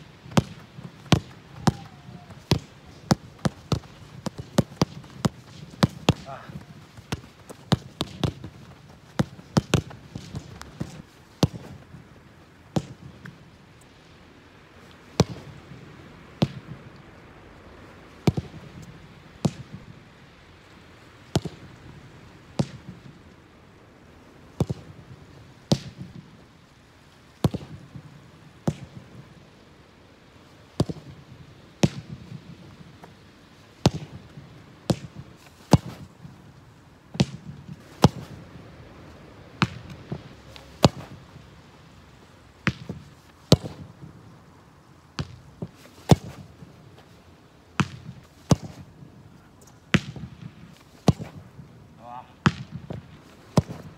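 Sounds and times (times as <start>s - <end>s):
ball striking wall: 0.3s - 11.7s, 39.6s - 41.2s, 42.6s - 44.0s, 45.2s - 46.5s, 47.8s - 48.9s, 51.0s - 51.5s, 52.4s - 53.9s
boot kicking soccer ball: 0.3s - 11.8s, 39.6s - 41.2s, 42.6s - 43.9s, 45.2s - 46.5s, 47.8s - 48.9s, 51.0s - 51.4s, 52.4s - 53.9s.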